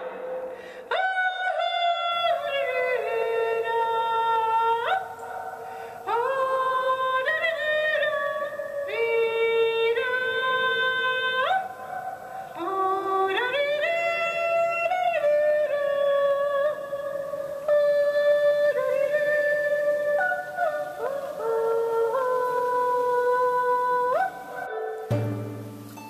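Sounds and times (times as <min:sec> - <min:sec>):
slow wordless music: 0:17.2 - 0:26.0.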